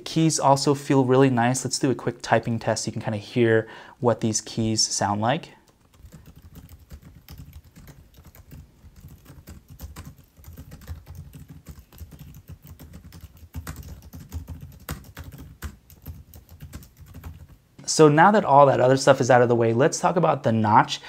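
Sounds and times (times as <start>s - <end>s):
fast typing on laptop keyboard: 5.9s - 17.6s.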